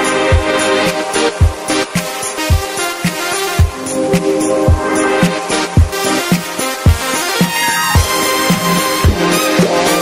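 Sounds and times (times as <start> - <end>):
background electronic music: 0.0 - 10.0
steady kick drum: 3.6 - 3.8.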